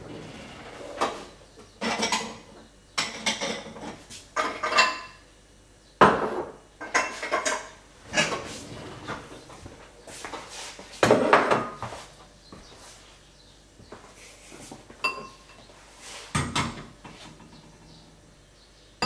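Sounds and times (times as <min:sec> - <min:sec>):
dishes and utensils clattering: 0:00.0 - 0:05.2, 0:06.0 - 0:09.4, 0:11.0 - 0:11.9, 0:15.0 - 0:15.7.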